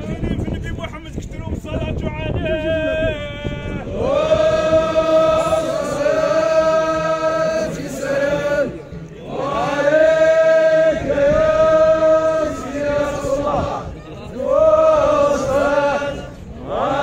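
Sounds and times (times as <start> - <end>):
men chanting held notes: 3.0 - 17.0.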